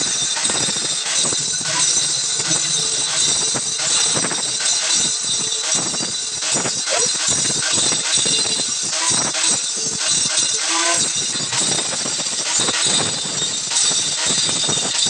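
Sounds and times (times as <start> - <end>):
arc welding crackling: 0.0 - 15.0.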